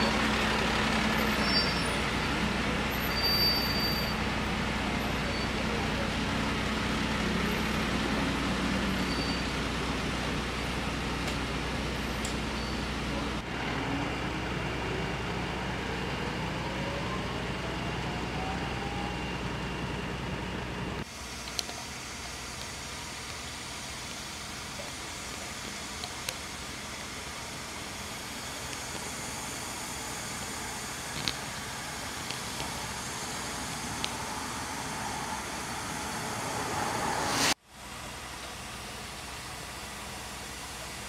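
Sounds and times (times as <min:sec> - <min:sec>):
rising whine: 0:00.0 - 0:24.6, 0:25.2 - 0:38.9
diesel engines droning: 0:00.0 - 0:41.0.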